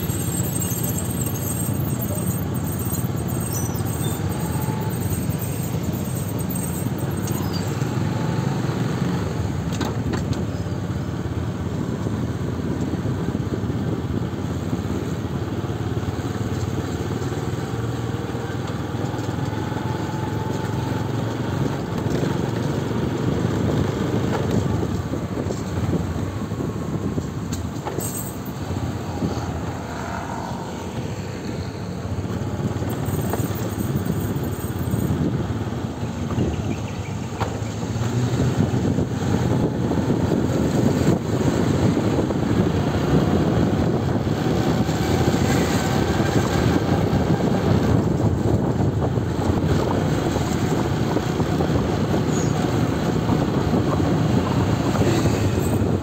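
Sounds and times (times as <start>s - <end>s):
vehicle engines rumbling: 0.0s - 56.0s
motorcycles riding past: 28.8s - 32.2s.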